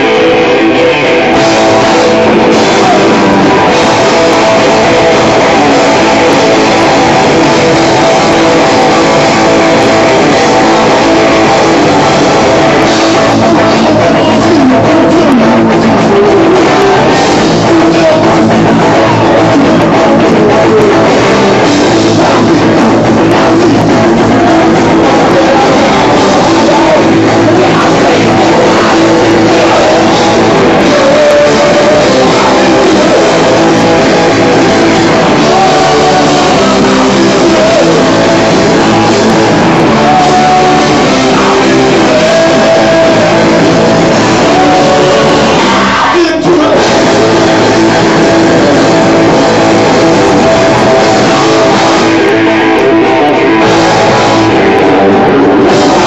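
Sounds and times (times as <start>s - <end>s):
drum kit: 0.0s - 56.0s
electric guitar: 0.0s - 56.0s
person singing: 0.0s - 56.0s.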